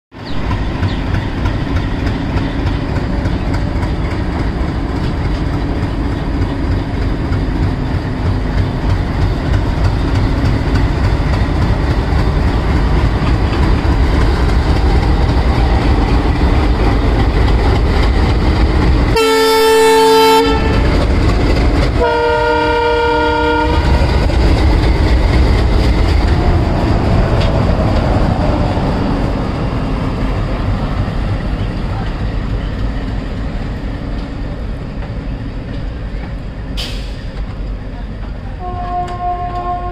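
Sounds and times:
diesel locomotive engine rumble: 0.1s - 39.9s
locomotive horn blasts: 19.2s - 21.0s, 22.0s - 24.0s, 38.6s - 39.9s.

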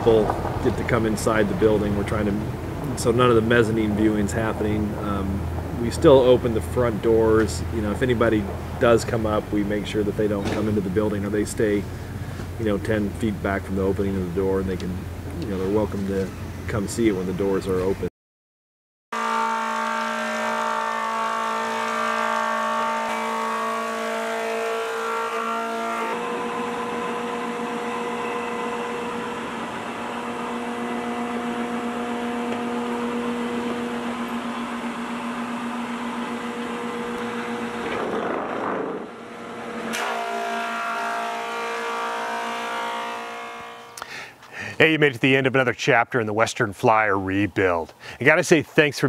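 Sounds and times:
thickness planer cutting planks: 19.2s - 44.0s.

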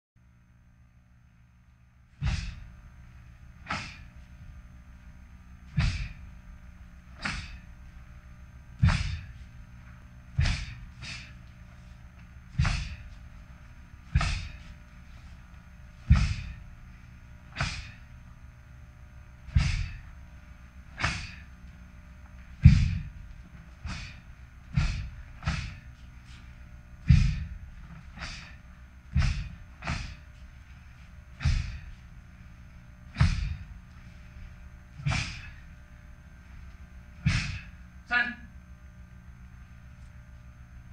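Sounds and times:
sharp snaps of martial arts strikes: 2.2s - 2.6s, 3.7s - 4.0s, 5.7s - 6.2s, 7.2s - 7.6s, 8.8s - 9.3s, 10.4s - 11.3s, 12.5s - 13.0s, 14.1s - 14.6s, 16.0s - 16.6s, 17.5s - 18.0s, 19.5s - 20.0s, 21.0s - 21.5s, 22.6s - 23.1s, 23.8s - 25.8s, 27.0s - 27.5s, 29.1s - 30.2s, 31.4s - 31.9s, 33.2s - 33.6s, 35.0s - 35.5s, 37.2s - 37.7s.

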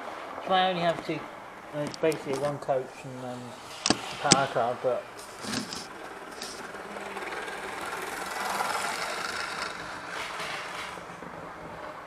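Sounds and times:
model train motor whirring: 3.5s - 11.2s.

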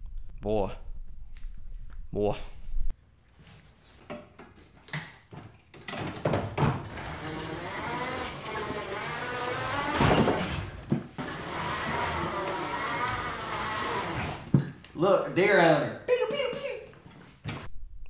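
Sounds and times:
electric mower motors whining: 6.8s - 14.5s.

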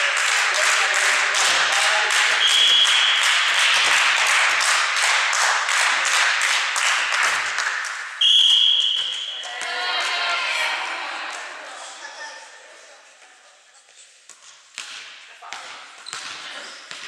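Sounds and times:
rhythmic hand clapping: 0.0s - 10.3s
referee's whistle: 2.4s - 3.4s, 8.2s - 9.5s.

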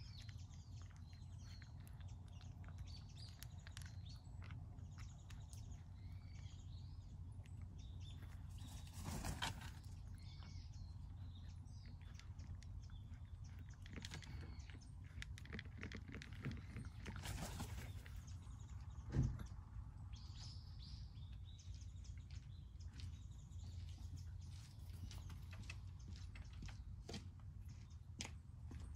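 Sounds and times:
cat crunching dry kibble: 0.0s - 18.2s
small birds chirping: 0.0s - 28.9s.

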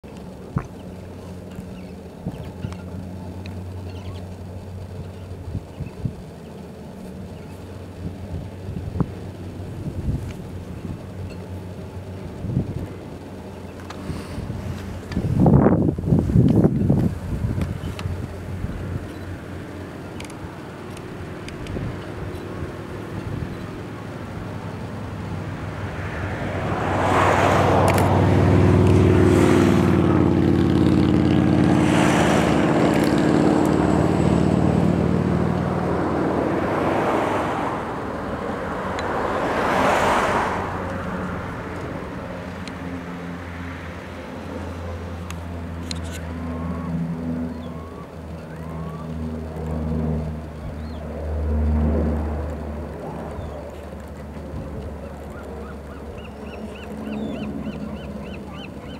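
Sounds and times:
turboprop engines droning: 0.0s - 58.9s
rushing swells of noise: 0.2s - 46.1s.

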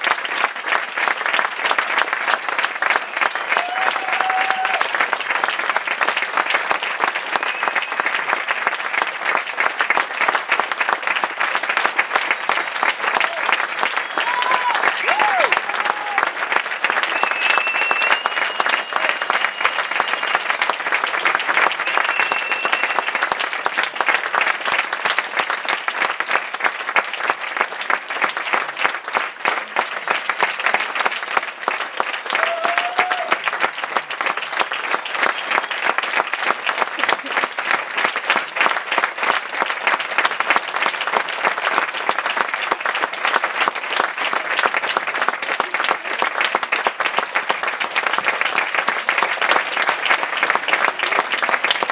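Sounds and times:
audience applauding: 0.0s - 51.9s
high whistle: 17.0s - 20.3s, 21.8s - 23.2s.

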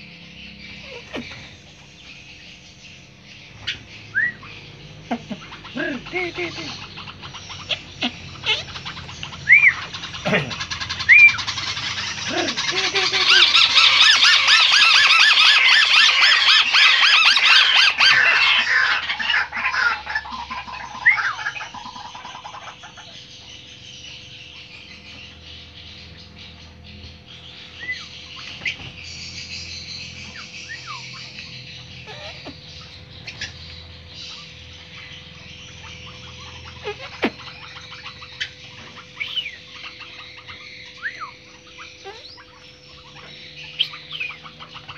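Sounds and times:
faint steady hum: 0.0s - 44.9s
crake rapid chattering call: 3.7s - 23.4s.

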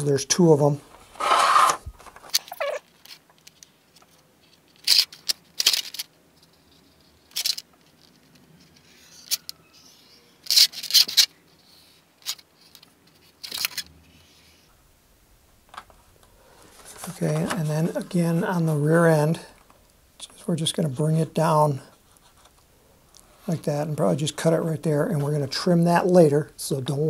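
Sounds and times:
plastic sheet rustling: 16.0s - 18.8s.

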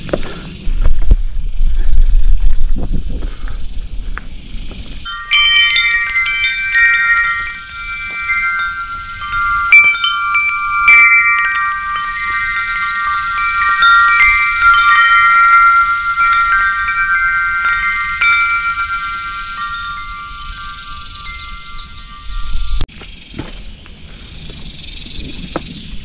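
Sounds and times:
low wind rumble: 0.0s - 26.0s
chimes ringing: 5.0s - 22.9s.

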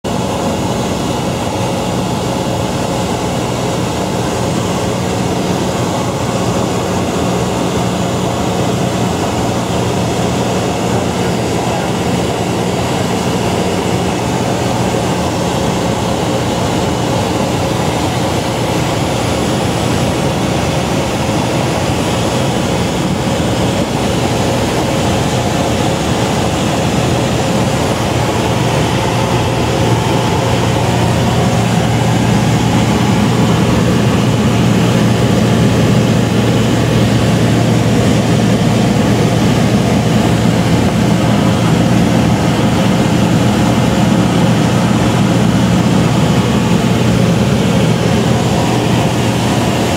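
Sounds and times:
light plane engine drone in cabin: 0.1s - 49.9s.

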